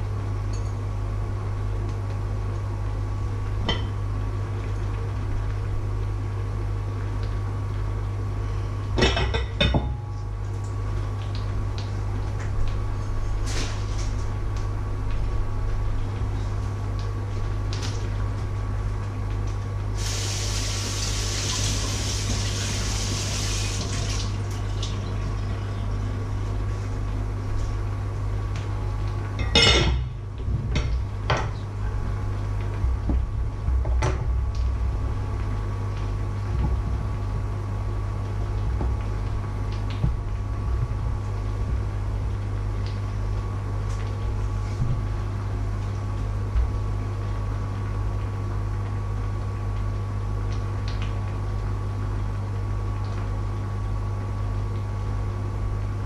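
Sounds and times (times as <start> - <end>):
steady low hum: 0.0 - 56.0
kitchen tap running: 20.0 - 25.4.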